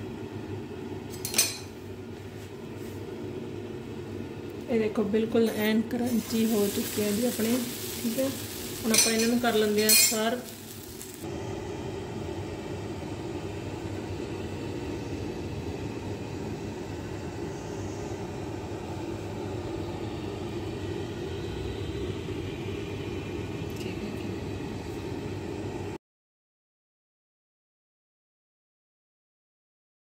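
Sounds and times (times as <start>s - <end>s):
low rumbling hum: 0.0s - 26.0s
constant hiss: 6.1s - 11.3s.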